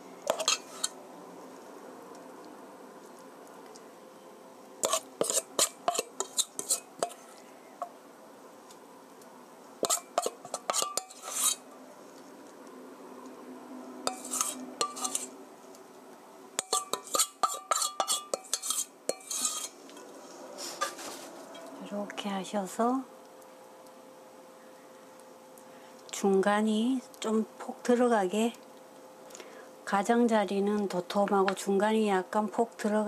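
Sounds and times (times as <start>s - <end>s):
metal spoon scraping steel bowl: 0.3s - 1.0s, 4.8s - 7.2s, 9.8s - 11.6s, 14.1s - 15.4s, 16.6s - 19.8s.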